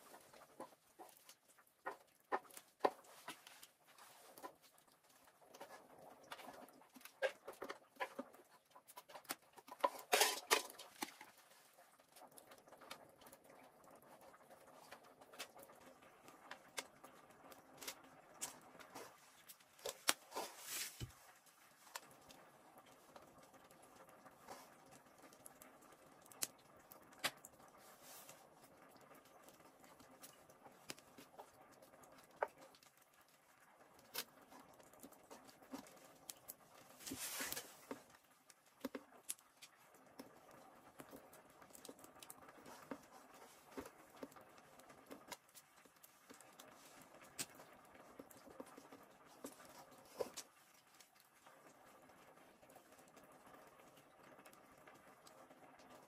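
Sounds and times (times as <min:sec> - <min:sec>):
hands skewering meat in metal bowl: 0:00.0 - 0:11.5.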